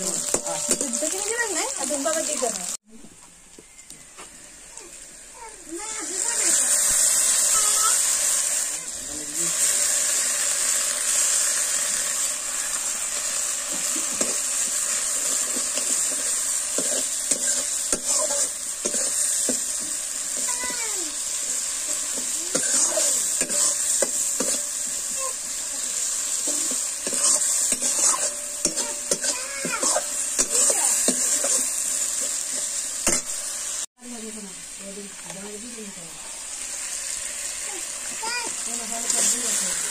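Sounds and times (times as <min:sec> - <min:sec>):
onions sizzling in pan: 0:00.0 - 0:02.9, 0:03.6 - 0:39.9
metal spatula scraping pan: 0:14.1 - 0:19.6, 0:21.9 - 0:25.2, 0:26.2 - 0:33.3.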